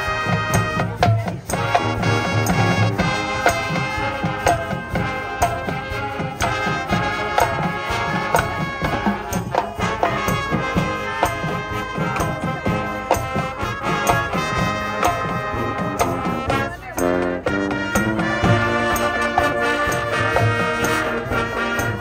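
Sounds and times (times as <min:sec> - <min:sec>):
drums and percussion: 0:00.0 - 0:22.0
marching band brass: 0:00.0 - 0:22.0.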